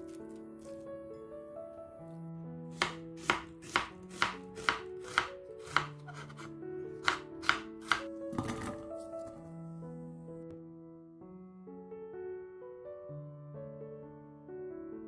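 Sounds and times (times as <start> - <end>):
knife chopping on wooden board: 2.7 - 8.8.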